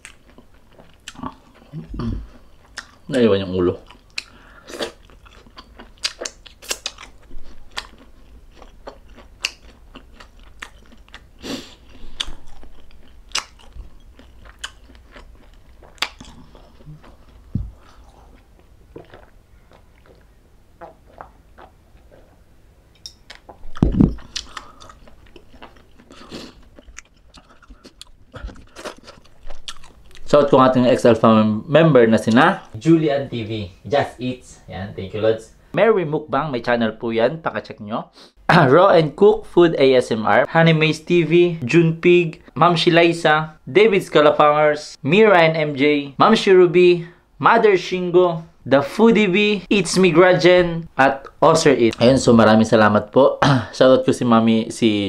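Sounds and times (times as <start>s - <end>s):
wet chewing and smacking: 0.0s - 3.1s, 3.7s - 22.4s, 23.0s - 30.4s
loud thump: 23.8s - 24.2s.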